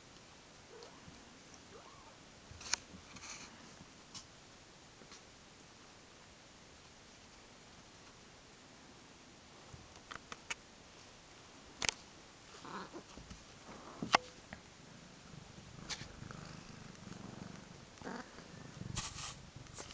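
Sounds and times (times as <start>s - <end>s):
kitten purring: 12.5s - 14.2s, 14.8s - 19.9s.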